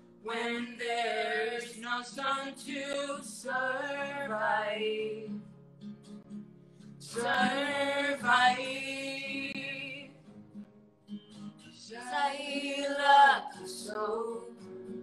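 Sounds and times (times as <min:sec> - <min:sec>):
acoustic guitar: 0:00.0 - 0:15.0
man and woman singing: 0:00.3 - 0:05.4, 0:07.0 - 0:10.1, 0:11.8 - 0:15.0.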